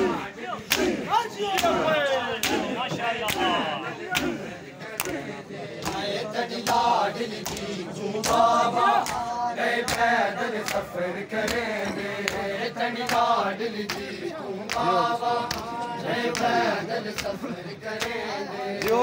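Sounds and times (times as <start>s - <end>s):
chest beating slaps: 0.0s - 5.2s
men chanting together: 0.0s - 19.0s.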